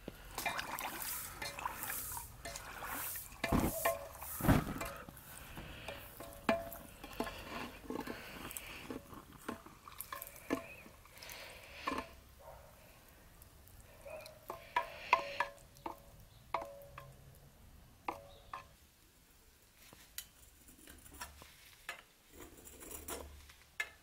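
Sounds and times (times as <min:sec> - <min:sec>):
oil crackling and bubbling: 0:00.0 - 0:24.0
tongs clinking against pipe: 0:02.4 - 0:05.1, 0:05.8 - 0:12.2.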